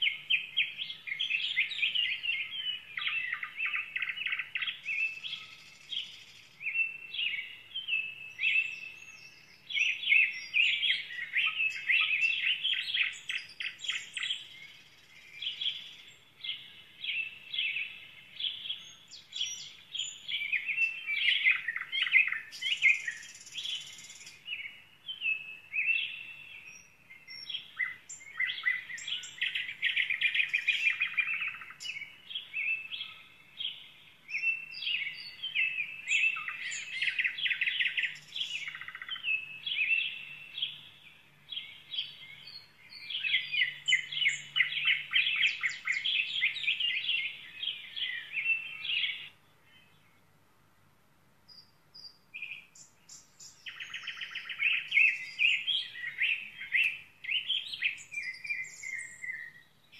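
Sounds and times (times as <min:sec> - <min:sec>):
songbirds chirping and trilling: 0:00.0 - 0:59.9.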